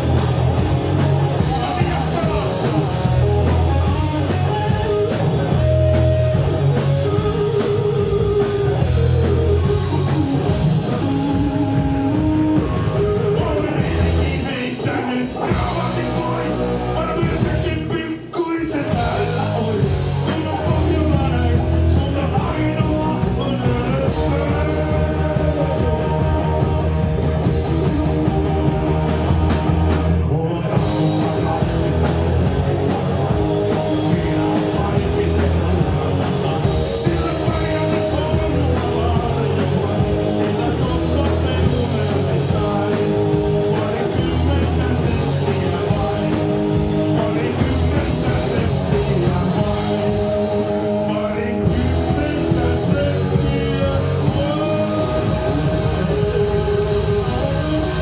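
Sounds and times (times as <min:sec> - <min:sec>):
live rock band playing: 0:00.0 - 0:58.0
person singing: 0:12.6 - 0:26.6, 0:30.2 - 0:58.0.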